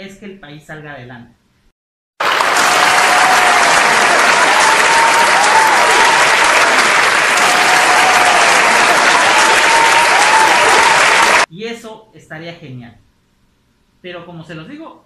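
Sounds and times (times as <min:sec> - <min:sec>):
audience applause: 0:02.2 - 0:11.5.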